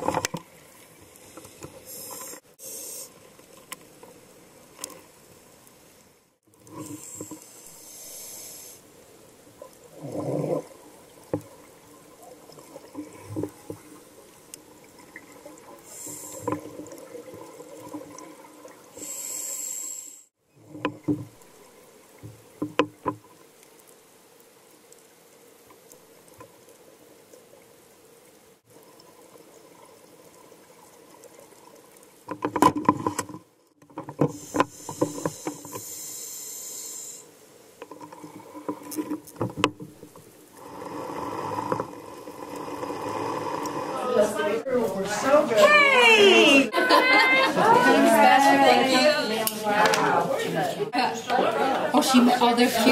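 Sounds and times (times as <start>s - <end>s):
regulator air hiss: 1.2s - 3.3s, 6.9s - 9.0s, 15.8s - 16.6s, 19.0s - 20.4s, 34.3s - 37.4s
exhaled bubbles gurgling: 9.6s - 19.2s.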